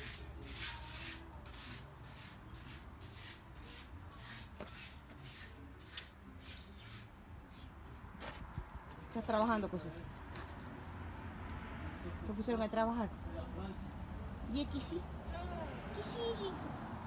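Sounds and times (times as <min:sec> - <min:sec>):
hand scraping soil: 0:00.0 - 0:08.5.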